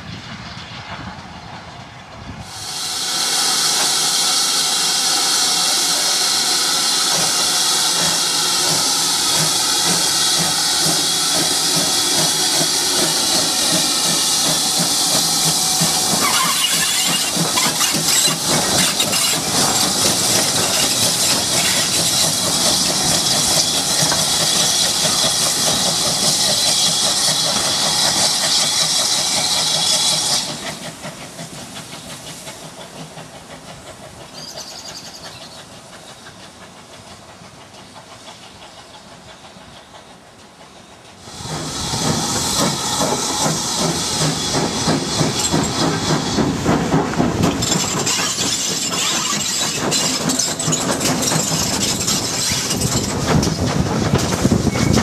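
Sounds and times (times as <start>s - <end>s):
steam locomotive hissing: 0.0s - 55.0s.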